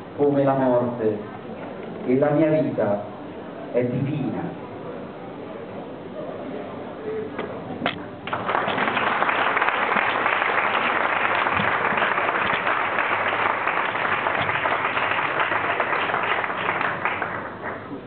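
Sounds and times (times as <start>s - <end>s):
audience applauding: 8.2s - 17.9s.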